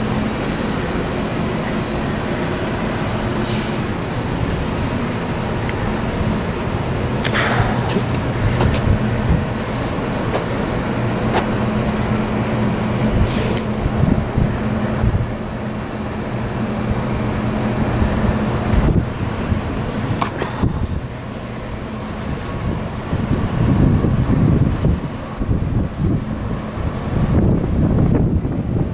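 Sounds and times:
steady low hum: 0.0 - 28.9
traffic noise: 0.0 - 28.9
wind buffeting microphone: 0.0 - 28.9.

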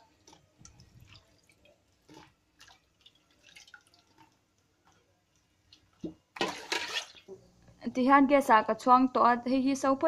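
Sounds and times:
water dripping and splashing: 0.1 - 7.3.

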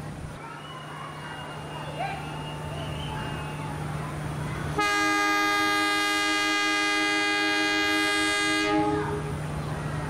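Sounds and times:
locomotive horn blast: 4.8 - 9.4.

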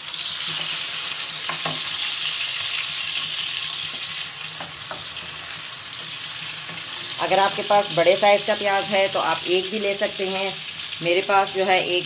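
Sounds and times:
onions sizzling in hot oil: 0.0 - 12.0
spatula scraping and tapping pan: 1.4 - 2.0, 3.8 - 7.2.

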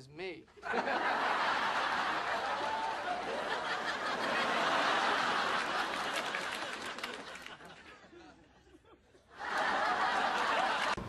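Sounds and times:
studio audience laughing: 0.6 - 11.0.

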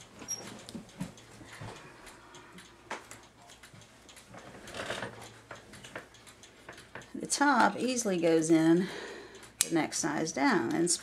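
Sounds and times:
clock escapement clicks and taps: 0.0 - 8.7.

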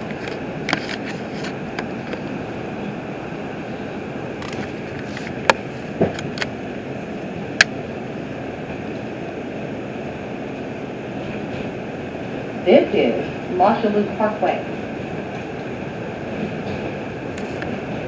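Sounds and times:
subway car running on track: 0.0 - 18.0.

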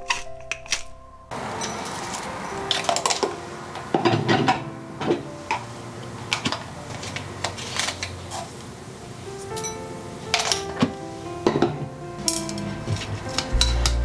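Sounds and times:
utensils clinking on ceramic bowl: 1.5 - 3.3, 9.6 - 10.9, 11.5 - 12.7.

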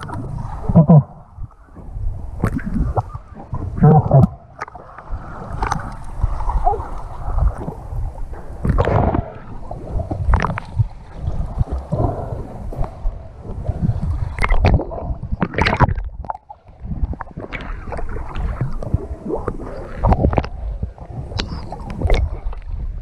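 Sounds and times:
water splashing and gurgling: 0.0 - 23.0.

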